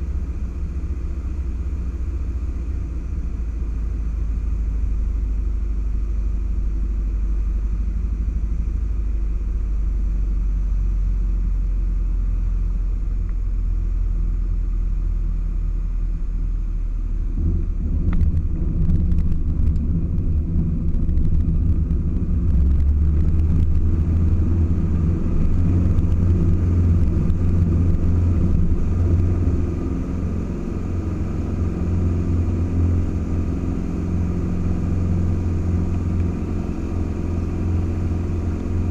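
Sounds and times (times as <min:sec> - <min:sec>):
aircraft engine and propeller drone: 0:18.0 - 0:38.9.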